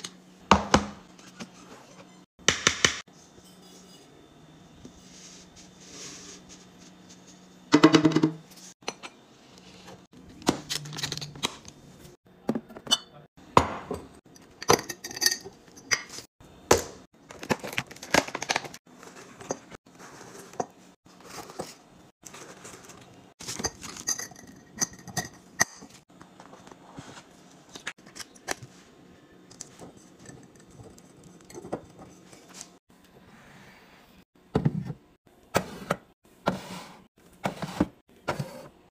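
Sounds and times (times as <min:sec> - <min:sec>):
glass jars clinking: 0:14.4 - 0:16.2.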